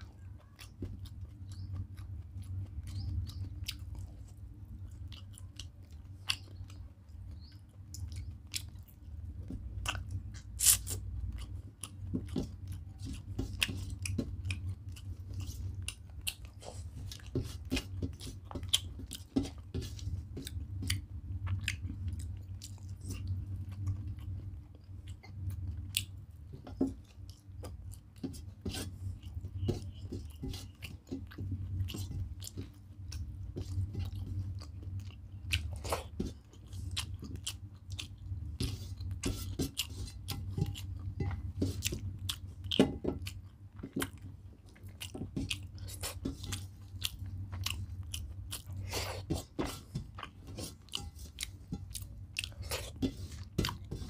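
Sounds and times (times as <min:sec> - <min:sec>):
steady low hum: 0:00.0 - 0:54.0
chewing mouth clicks: 0:00.4 - 0:09.0.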